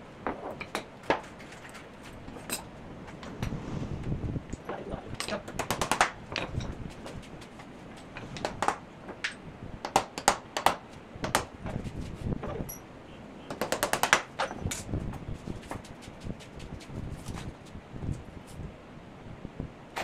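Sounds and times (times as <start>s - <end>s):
hammer tapping nails into wood: 5.2s - 6.5s, 8.3s - 11.6s, 13.5s - 14.6s.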